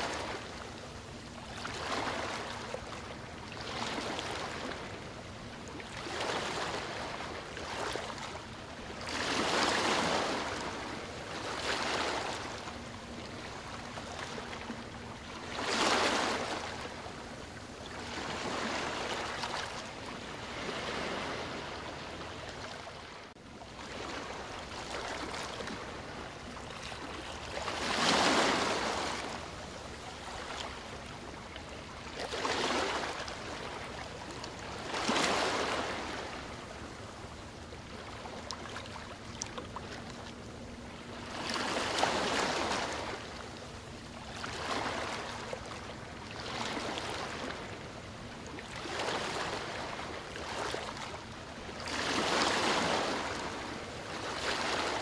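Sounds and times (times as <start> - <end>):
waves washing on sandy beach: 0.0 - 12.6, 27.3 - 37.4, 48.7 - 55.0.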